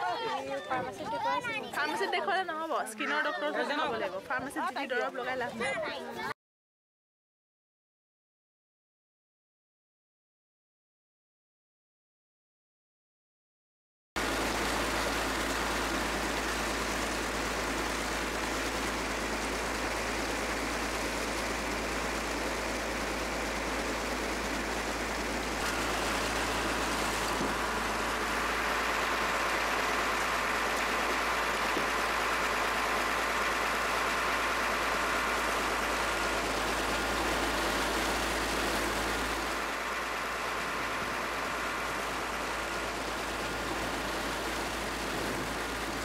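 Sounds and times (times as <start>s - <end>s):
boat engine running: 14.2s - 46.0s.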